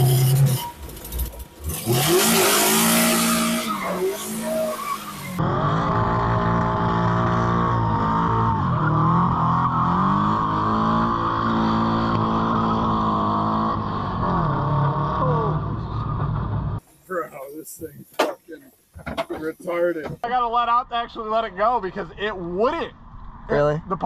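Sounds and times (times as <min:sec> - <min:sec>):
car engine revving: 0:00.0 - 0:16.8
tires squealing and skidding: 0:01.6 - 0:14.6.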